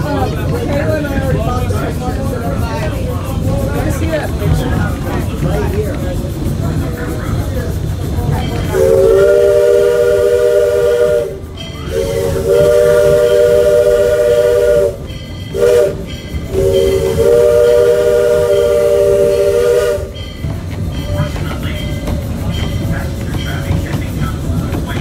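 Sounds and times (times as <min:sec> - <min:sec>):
low rumble of locomotive: 0:00.0 - 0:25.0
chime steam whistle: 0:08.5 - 0:22.9.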